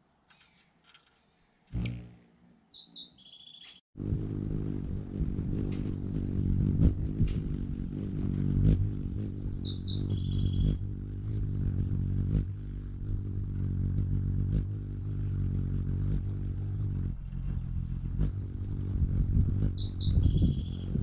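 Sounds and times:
hummingbird chips and squeal: 0.3s - 3.8s, 9.2s - 15.4s, 16.0s - 21.0s
low hum: 1.7s - 2.7s, 4.0s - 21.0s.

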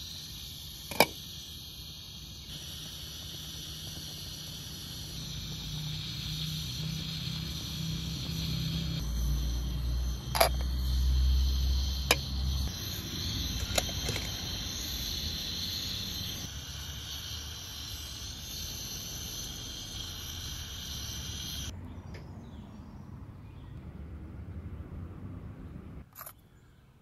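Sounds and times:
gas burner hiss: 0.0s - 21.7s
teapot clinking against kettle: 10.4s - 10.7s.

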